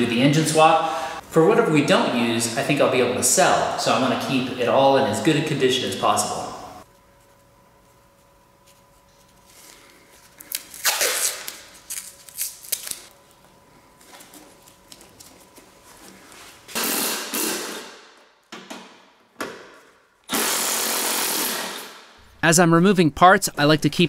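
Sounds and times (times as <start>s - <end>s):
masking tape pulled and torn: 10.4s - 13.1s.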